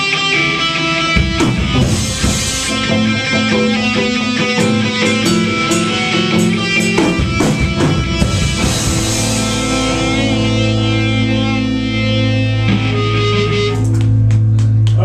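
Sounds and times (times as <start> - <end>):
guitar and bass ringing chord: 0.0 - 14.9
live rock band playing: 0.0 - 15.0
drum and cymbal hits: 1.2 - 10.8.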